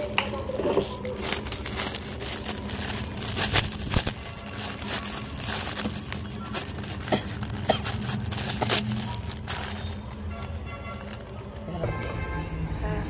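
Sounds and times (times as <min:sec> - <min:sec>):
plastic bag crinkling: 0:00.0 - 0:11.7.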